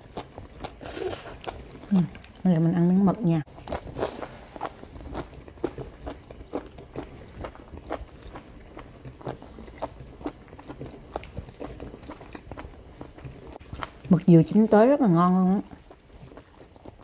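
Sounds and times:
person chewing with mouth clicks: 3.5s - 14.1s.

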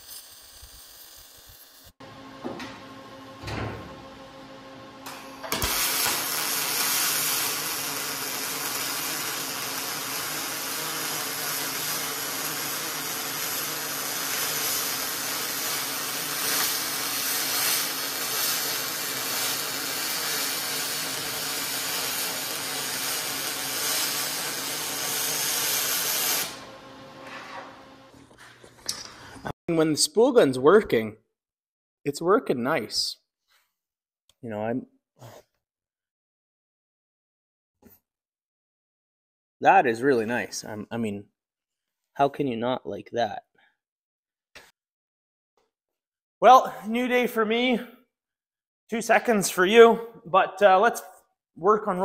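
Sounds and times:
welding arc hissing: 0.0s - 2.0s, 5.0s - 26.7s.

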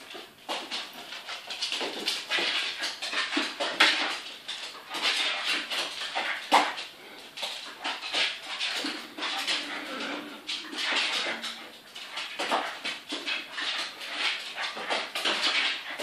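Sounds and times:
dog claws clicking on wooden floor: 0.0s - 16.0s.

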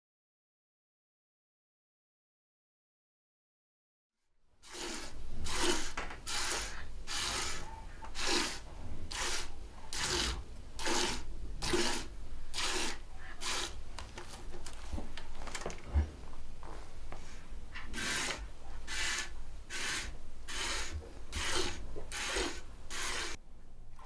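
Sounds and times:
milk squirting into pail: 4.6s - 7.6s, 18.0s - 23.4s.

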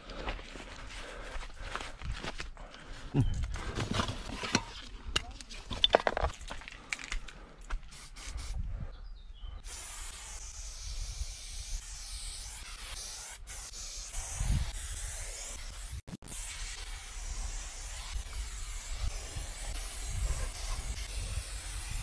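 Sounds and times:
spray paint can hissing: 7.9s - 8.6s, 9.6s - 22.0s.

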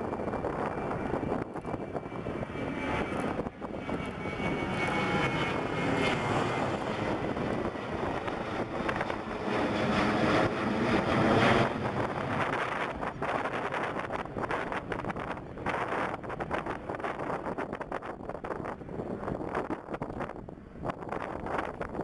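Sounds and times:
jet airliner passing overhead: 0.0s - 22.0s.

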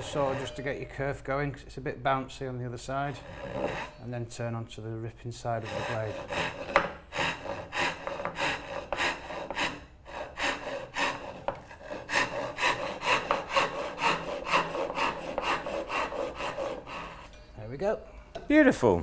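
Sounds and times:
handsaw cutting wood: 0.0s - 0.6s, 3.0s - 4.0s, 5.5s - 17.3s.

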